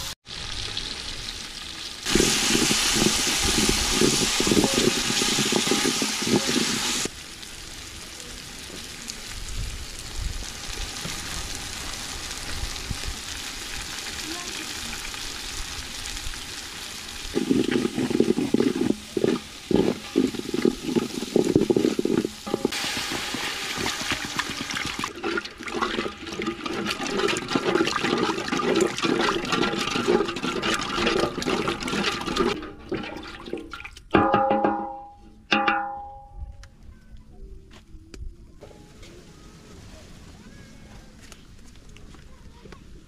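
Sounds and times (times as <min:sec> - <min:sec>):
sauce sizzling in a pot: 0:00.2 - 0:08.2, 0:08.8 - 0:32.6
water pouring: 0:02.0 - 0:07.1, 0:16.6 - 0:35.0
wooden spoon stirring: 0:02.1 - 0:07.1, 0:17.4 - 0:33.9.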